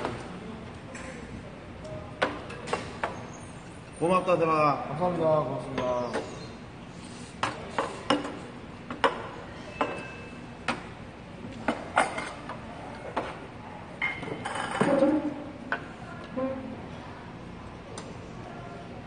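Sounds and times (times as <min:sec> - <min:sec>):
metal dishes clinking on table: 0:11.7 - 0:12.5, 0:14.0 - 0:15.3.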